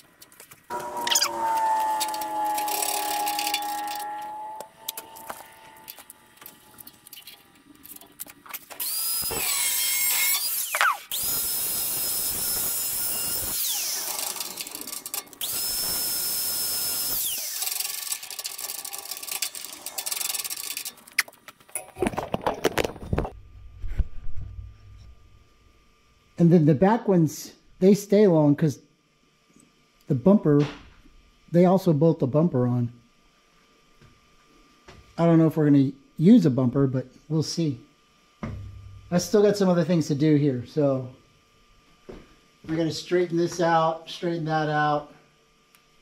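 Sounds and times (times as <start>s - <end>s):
angle grinder cutting steel: 0.7s - 6.2s, 8.8s - 21.0s
motor whine winding down: 0.7s - 7.5s, 8.7s - 21.2s.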